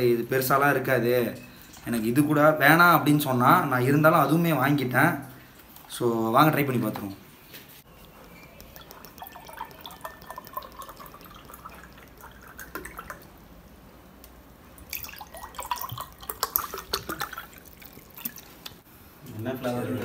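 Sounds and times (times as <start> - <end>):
drink pouring into glass: 7.9 - 13.4, 14.8 - 18.8.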